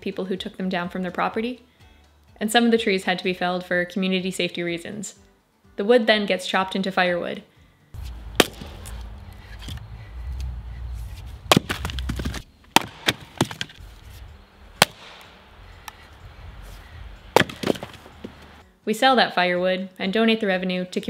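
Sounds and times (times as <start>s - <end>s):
axe chopping wood: 8.0s - 9.8s, 10.4s - 16.0s, 17.2s - 18.6s.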